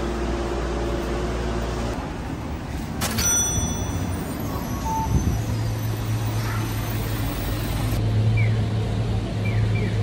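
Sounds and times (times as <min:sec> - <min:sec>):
vehicle engine low hum: 0:00.0 - 0:02.9, 0:07.2 - 0:10.0
city street traffic: 0:00.0 - 0:10.0.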